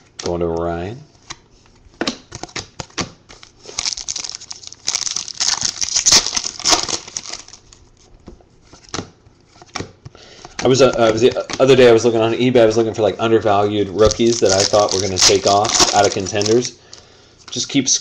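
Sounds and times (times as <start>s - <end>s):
card packaging crinkling: 2.3s - 8.0s, 10.5s - 17.0s
trading cards tapped: 9.7s - 11.8s.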